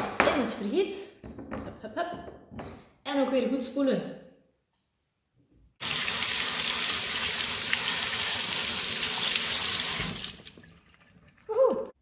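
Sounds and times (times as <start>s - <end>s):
tap water splashing on tomatoes: 5.8s - 11.6s.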